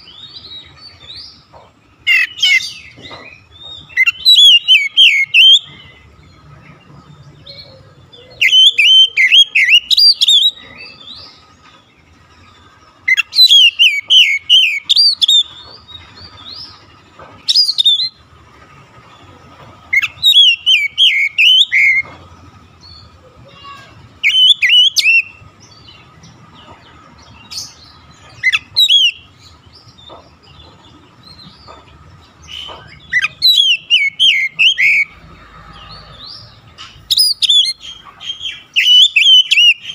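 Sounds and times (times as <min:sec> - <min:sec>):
bird singing whistled notes: 0:03.7 - 0:06.0, 0:07.7 - 0:11.3, 0:13.0 - 0:15.6, 0:17.5 - 0:18.2, 0:19.9 - 0:22.1, 0:24.2 - 0:26.0, 0:27.6 - 0:29.4, 0:32.6 - 0:35.2, 0:37.0 - 0:39.9.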